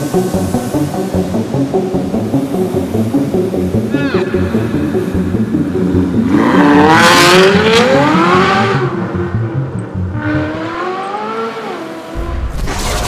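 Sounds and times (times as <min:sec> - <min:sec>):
car engine revving past: 0:06.1 - 0:12.8.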